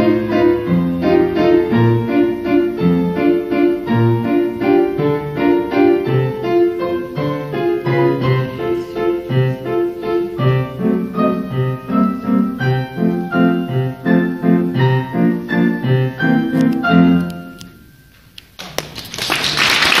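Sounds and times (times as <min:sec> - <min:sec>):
piano playing notes and chords: 0:00.0 - 0:18.5
clicks: 0:16.5 - 0:18.6.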